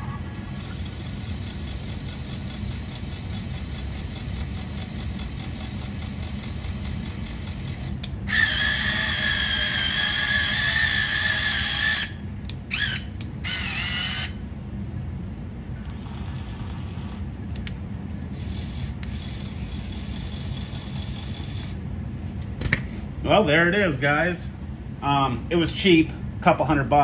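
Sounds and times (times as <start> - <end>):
electric motors droning: 0.0 - 14.4, 15.8 - 17.3
high motor whine: 0.0 - 14.6, 18.3 - 21.9.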